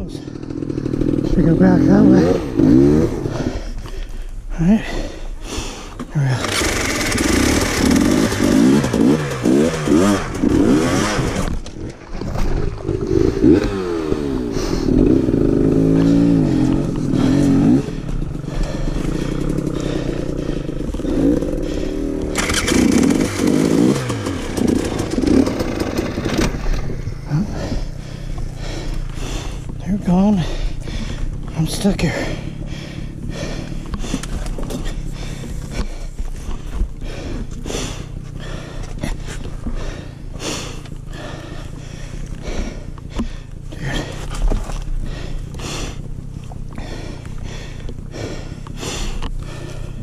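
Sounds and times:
dirt bike engine revving: 0.0 - 3.6, 6.3 - 11.6, 12.2 - 29.0.

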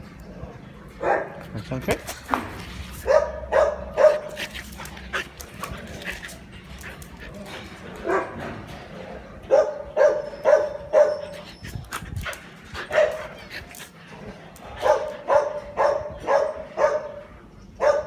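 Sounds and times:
dog barking in high yips: 9.5 - 11.3.

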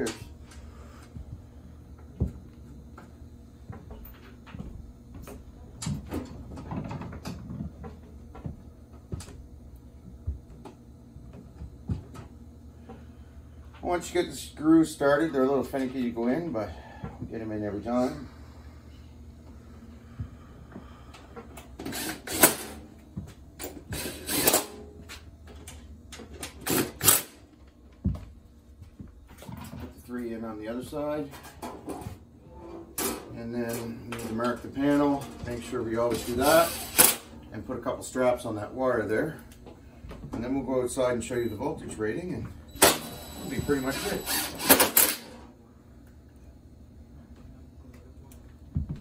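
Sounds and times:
cordless drill driving screws: 36.2 - 37.1, 42.8 - 45.3.

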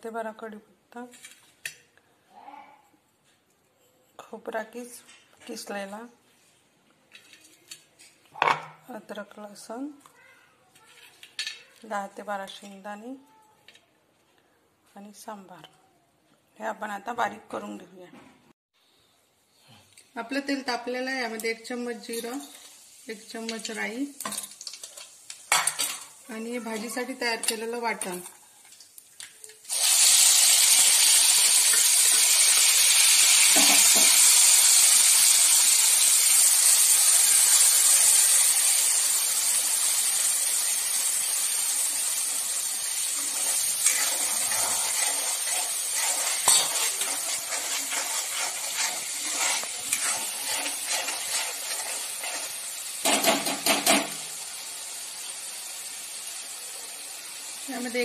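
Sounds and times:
spatula scraping and tapping pan: 7.1 - 8.7, 43.1 - 54.2
paste sizzling in hot oil: 20.7 - 58.0.

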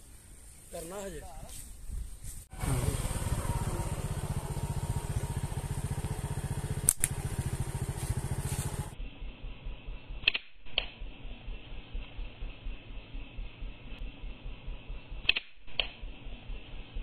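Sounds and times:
engine running: 2.5 - 10.3, 10.9 - 17.0
sharp clicks: 6.0 - 7.6, 10.1 - 11.2, 15.0 - 16.2.

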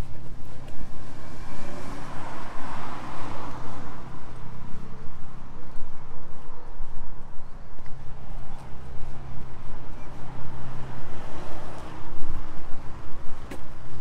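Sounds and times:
car driving past: 1.1 - 4.6.

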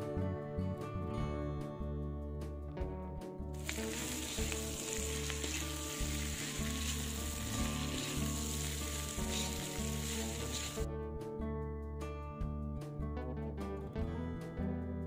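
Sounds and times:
soft background music: 0.0 - 15.0
spatula stirring in a pan: 3.6 - 10.8
food sizzling in hot oil: 3.6 - 10.9.

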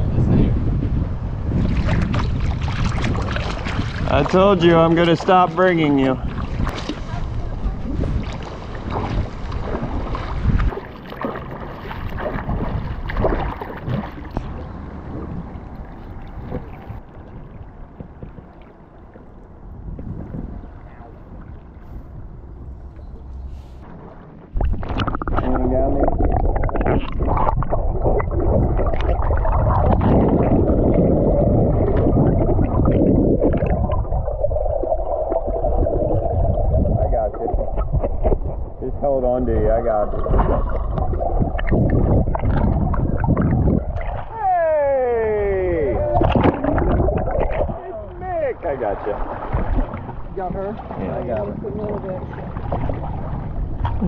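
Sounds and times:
river water splashing: 1.6 - 36.6, 39.6 - 54.0
bubbly crackles and pops: 24.5 - 38.8, 40.0 - 44.3, 46.1 - 47.8.

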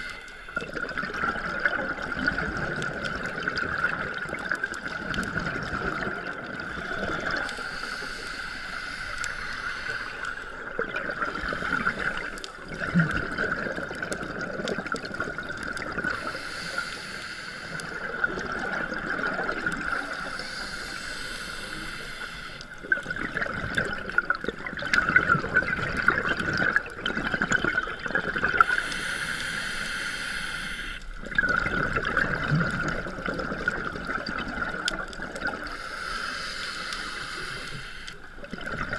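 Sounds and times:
exhaled bubbles gurgling: 0.0 - 38.9
air hissing through regulator: 20.1 - 22.7, 28.6 - 31.1, 35.7 - 38.2.

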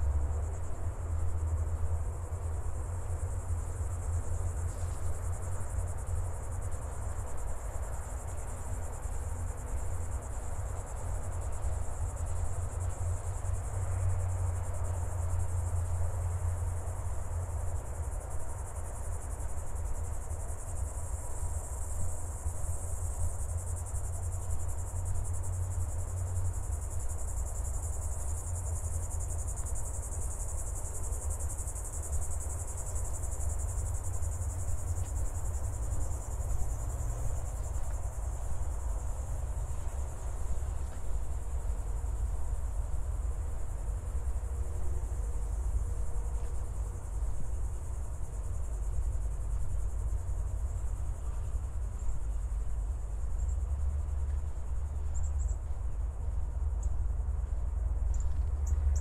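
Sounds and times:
insects chirring: 0.0 - 59.0.

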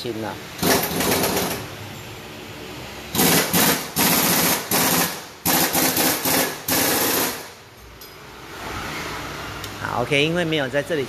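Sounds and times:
pneumatic impact wrench rattling: 0.6 - 1.8, 3.1 - 7.6.

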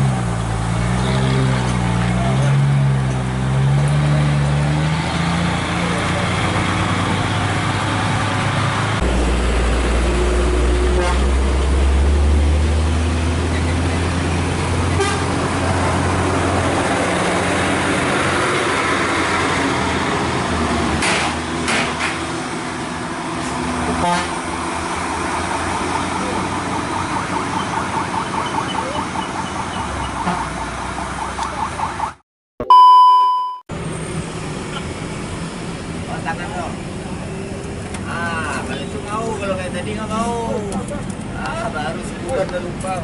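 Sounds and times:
diesel truck engine hum: 0.0 - 43.0
road traffic noise: 0.0 - 43.0.

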